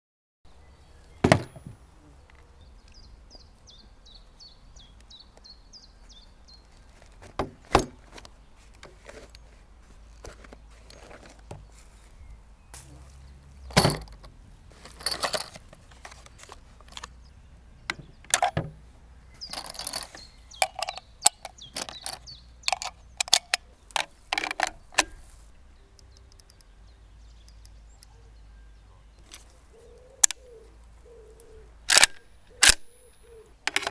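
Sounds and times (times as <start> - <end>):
bird chirping: 0.5 - 7.2, 15.0 - 33.9.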